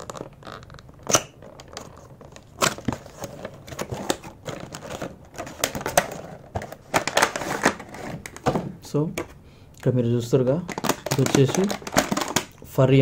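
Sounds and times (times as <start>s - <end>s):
plastic tray crinkling: 0.0s - 9.3s, 10.6s - 12.6s.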